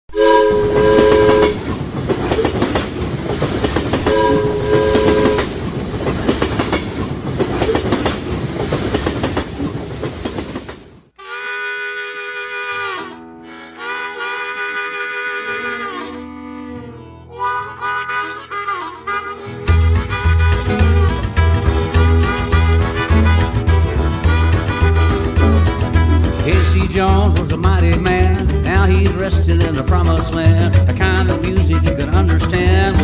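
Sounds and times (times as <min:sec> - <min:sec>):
harmonica music: 0:00.1 - 0:01.6, 0:04.0 - 0:05.5, 0:11.2 - 0:33.0
steam whistle blasts: 0:00.1 - 0:01.6, 0:04.0 - 0:05.5, 0:11.2 - 0:16.2
steam locomotive running: 0:00.1 - 0:15.9, 0:17.4 - 0:33.0.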